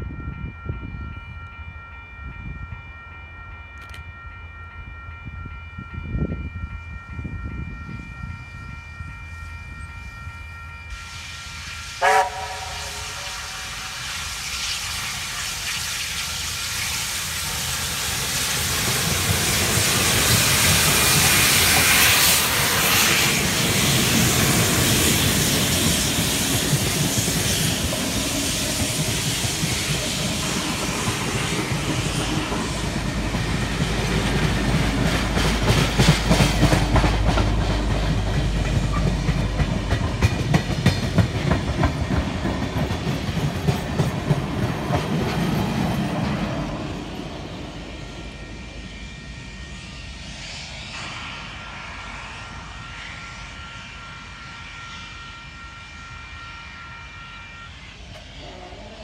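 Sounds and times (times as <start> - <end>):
train wheels clickety-clacking: 3.8 - 4.1, 12.0 - 48.0, 58.0 - 59.0.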